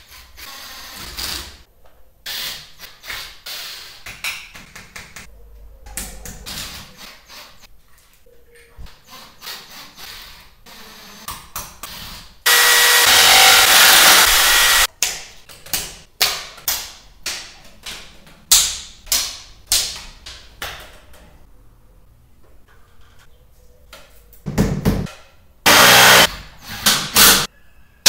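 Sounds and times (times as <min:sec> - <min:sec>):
power drill drilling into ceiling: 0:12.5 - 0:14.9, 0:25.7 - 0:26.3.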